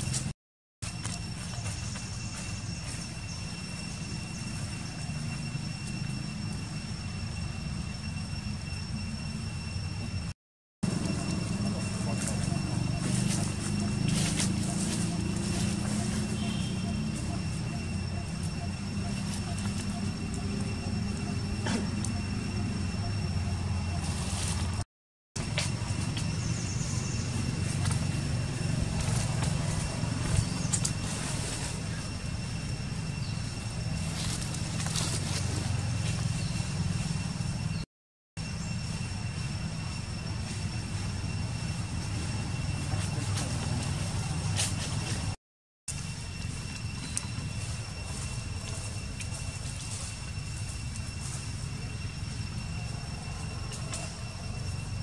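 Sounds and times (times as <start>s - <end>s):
high-pitched whine: 0.0s - 24.8s, 25.4s - 55.0s
steady low rumble: 25.4s - 37.8s.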